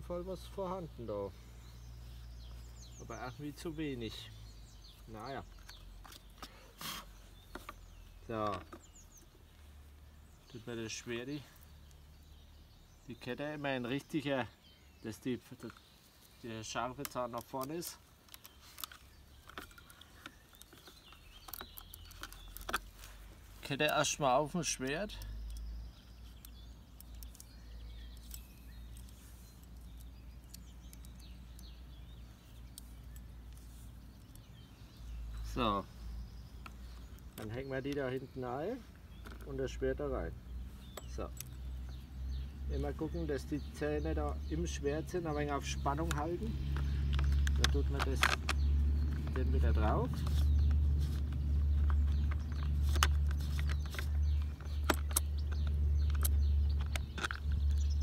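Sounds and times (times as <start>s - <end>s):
small birds chirping: 0.0s - 58.0s
sharp clicks: 45.1s - 58.0s.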